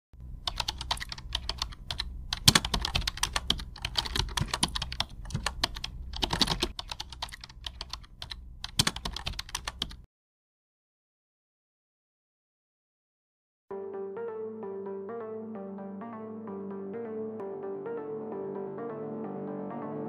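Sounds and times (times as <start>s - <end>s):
faint low hum: 0.2s - 10.0s
keyboard typing: 0.4s - 10.1s.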